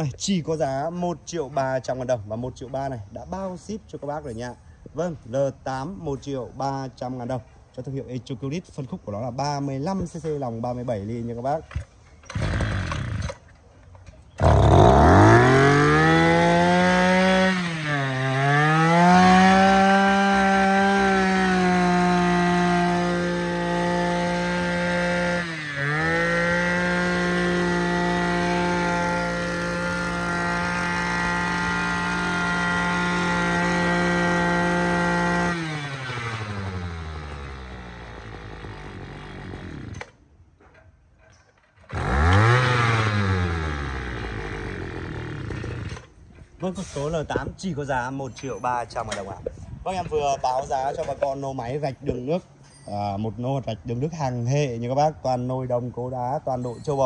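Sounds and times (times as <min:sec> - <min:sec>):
small two-stroke engine revving: 0:11.7 - 0:13.5, 0:14.3 - 0:40.2, 0:41.8 - 0:46.1
pull-start cord: 0:11.7 - 0:15.6, 0:26.7 - 0:46.2.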